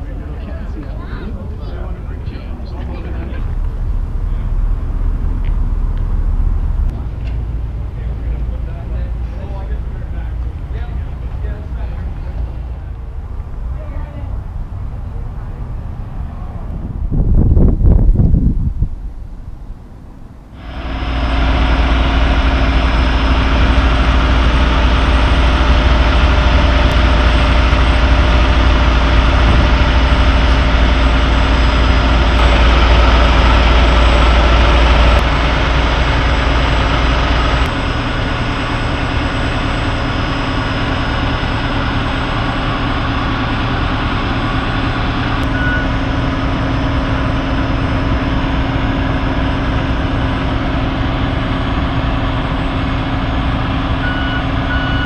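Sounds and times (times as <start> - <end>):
truck diesel engines idling: 0.0 - 18.0, 18.8 - 55.0.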